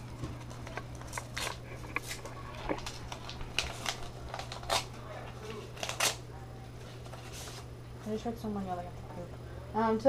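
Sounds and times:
paper rustling and crinkling: 0.0 - 7.7
faint steady hum: 0.0 - 10.0.

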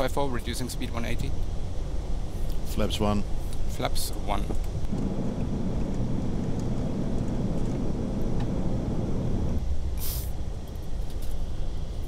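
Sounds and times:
airplane cabin engine rumble: 0.0 - 12.0
short hiss: 10.0 - 10.4.

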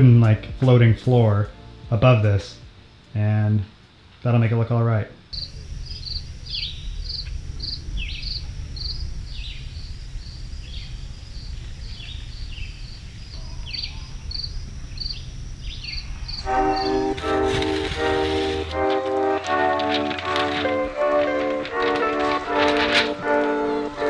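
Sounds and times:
music: 0.0 - 4.0, 13.4 - 24.0
steady low rumble: 5.3 - 23.3
high repeating chirp: 5.4 - 9.8, 11.9 - 19.4
short falling whistled calls: 11.8 - 18.8.

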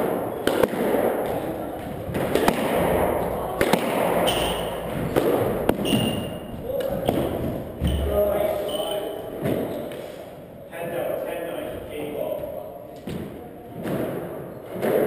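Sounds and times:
squash ball smacks: 0.0 - 8.0, 13.0 - 15.0
shoes squeaking on wooden floor: 4.2 - 10.1.

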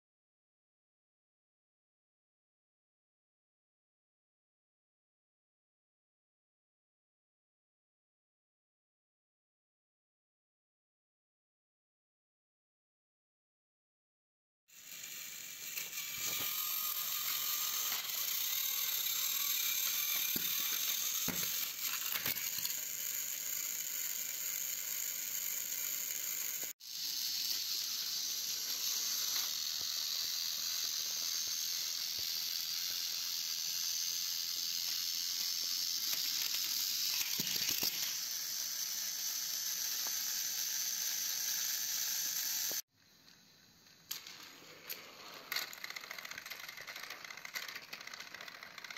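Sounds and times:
toy train motors whirring: 14.7 - 48.9.

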